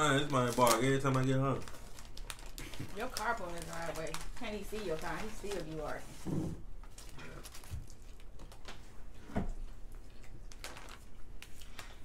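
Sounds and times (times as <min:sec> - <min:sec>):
people chewing crunchy food: 0:01.6 - 0:04.9, 0:06.8 - 0:12.0.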